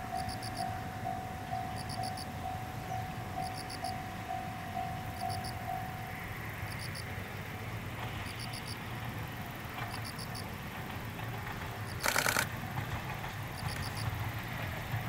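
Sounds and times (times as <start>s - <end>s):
loud rattling burst: 11.9s - 13.9s.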